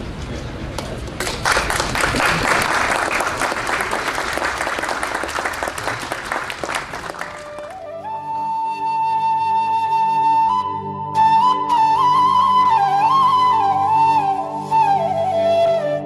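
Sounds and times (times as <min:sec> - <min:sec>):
crowd applauding: 0:01.2 - 0:08.2.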